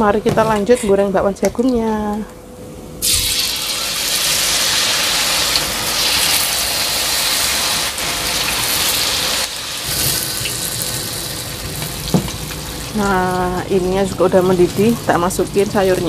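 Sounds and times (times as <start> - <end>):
batter sizzling in hot oil: 3.0 - 16.0.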